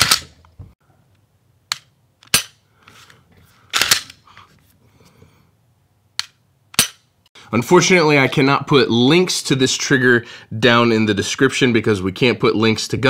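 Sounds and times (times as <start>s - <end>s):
pistol slide clatter: 3.7s - 4.2s, 6.2s - 7.1s.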